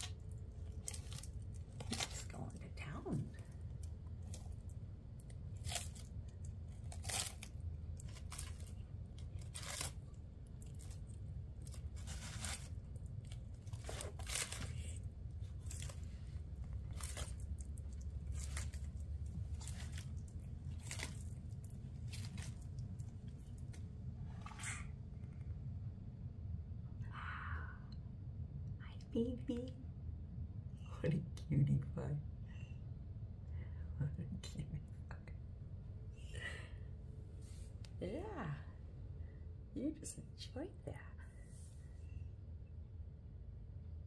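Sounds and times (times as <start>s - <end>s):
tortoise crunching lettuce: 0.0s - 25.4s.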